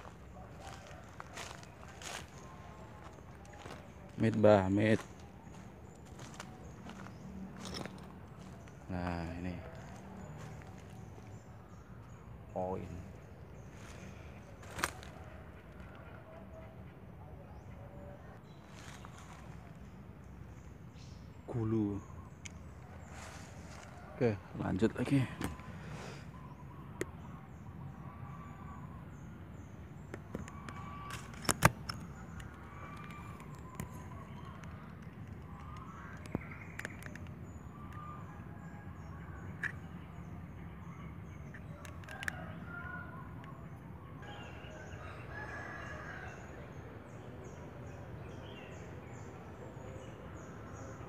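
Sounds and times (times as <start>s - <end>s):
footsteps on dry leaves: 0.0s - 8.7s, 13.7s - 15.2s, 18.6s - 19.7s, 23.0s - 24.2s
sharp clicks and crackles: 30.1s - 38.0s, 41.5s - 42.4s.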